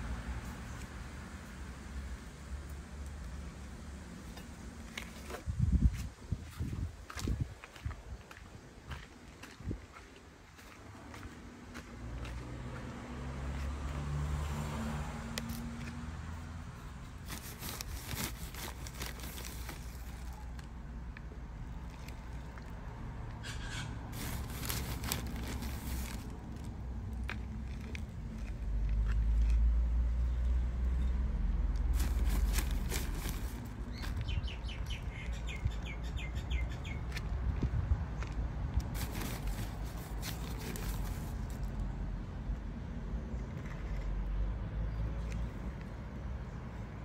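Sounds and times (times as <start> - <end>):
trowel scraping soil in plastic pot: 17.0 - 20.6, 23.4 - 29.6, 31.8 - 34.1, 38.8 - 41.7.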